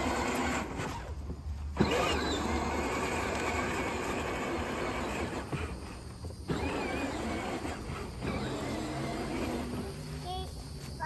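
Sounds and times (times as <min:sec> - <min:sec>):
toy car electric motors running: 0:00.0 - 0:10.6.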